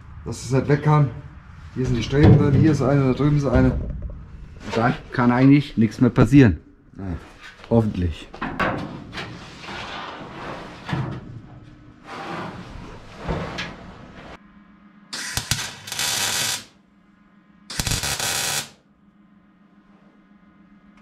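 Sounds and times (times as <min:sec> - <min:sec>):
welding crackle: 0:15.2 - 0:16.8, 0:17.7 - 0:18.8.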